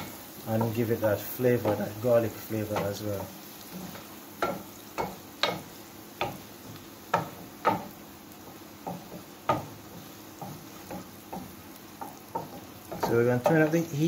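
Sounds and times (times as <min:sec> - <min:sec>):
garlic sizzling in butter: 0:00.0 - 0:14.0
wooden spoon knocking against pan: 0:04.4 - 0:08.0, 0:08.8 - 0:13.7.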